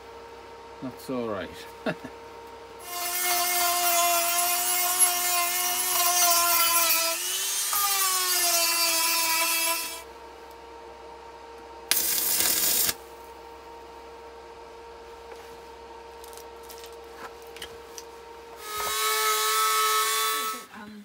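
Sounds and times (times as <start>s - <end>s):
rotary tool grinding steel: 2.8s - 10.0s, 11.9s - 13.0s, 18.6s - 20.7s
noisy grinding burst: 11.9s - 13.0s.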